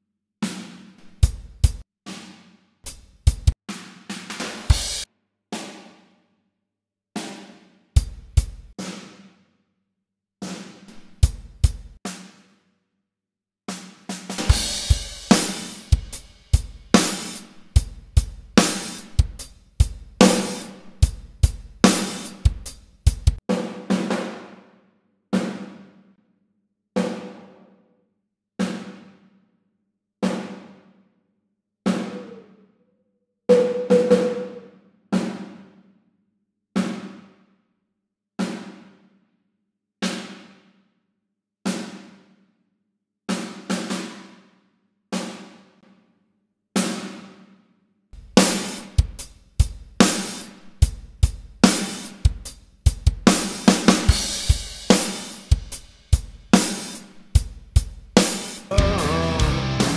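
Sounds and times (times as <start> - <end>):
drum kit groove: 0.4 - 6.0, 7.2 - 9.3, 10.4 - 12.5, 13.7 - 24.6, 33.5 - 34.6, 48.2 - 59.9.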